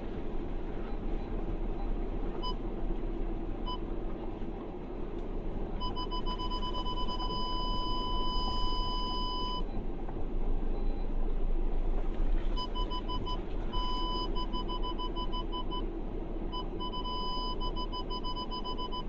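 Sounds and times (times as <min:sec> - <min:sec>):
car engine rumble: 0:00.0 - 0:19.0
tyres on rough track: 0:00.0 - 0:19.0
parking sensor beeping: 0:00.8 - 0:02.6, 0:03.6 - 0:03.9, 0:05.8 - 0:09.9, 0:12.6 - 0:15.9, 0:16.5 - 0:19.0.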